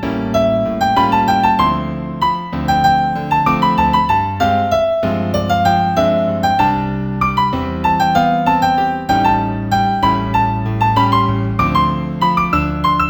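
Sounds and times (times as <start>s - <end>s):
gentle piano music: 0.0s - 13.0s.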